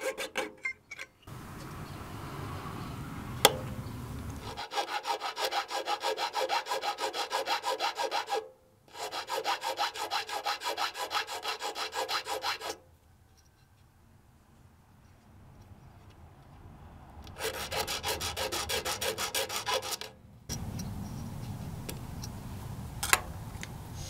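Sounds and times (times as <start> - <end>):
file rasping on metal: 0.0 - 0.6, 4.4 - 12.8, 17.4 - 20.1
rustle of handling: 20.5 - 24.0.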